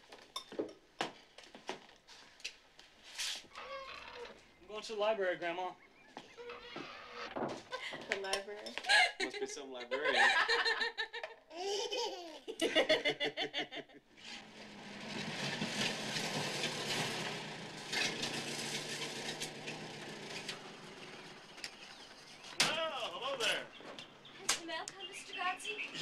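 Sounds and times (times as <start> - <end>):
family laughing: 7.6 - 8.2, 8.8 - 14.0
old car engine running: 14.3 - 22.5.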